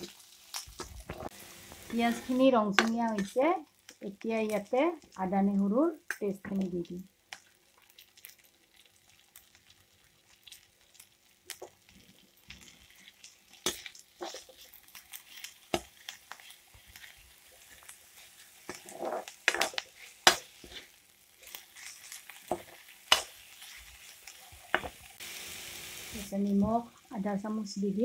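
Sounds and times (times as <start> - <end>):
faint sizzle of frying: 0.0 - 28.0
metal spoon scraping a pan: 12.7 - 25.1.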